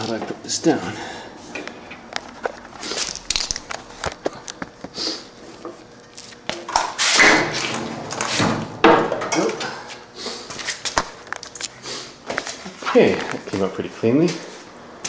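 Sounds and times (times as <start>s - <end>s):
handling noise: 1.5s - 9.8s.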